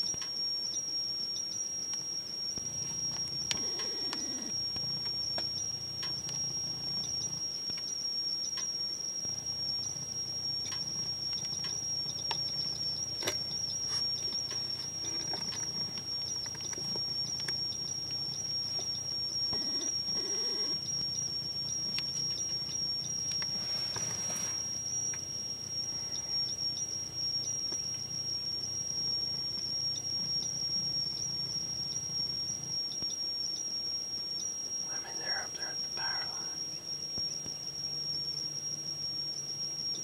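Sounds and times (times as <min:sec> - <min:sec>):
high-pitched whine: 0:00.0 - 0:40.0
faint clicks and ticks: 0:02.6 - 0:24.1.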